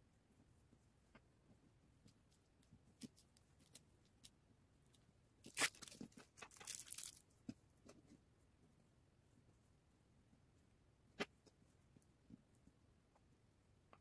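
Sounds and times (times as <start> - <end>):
plastic sheet rustling: 5.5 - 7.2.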